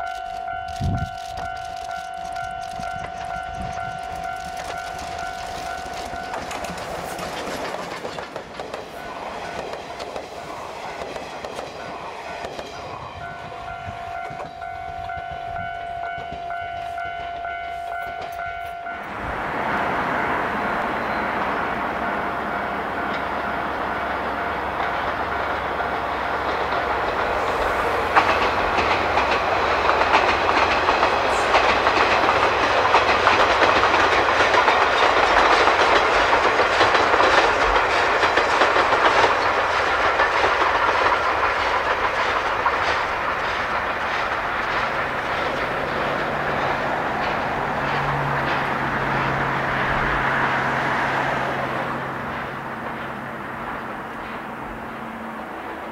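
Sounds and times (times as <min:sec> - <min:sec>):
train wheels clacking over rail joints: 0:00.0 - 0:13.0, 0:22.9 - 0:55.9
steady high tone: 0:11.8 - 0:29.7.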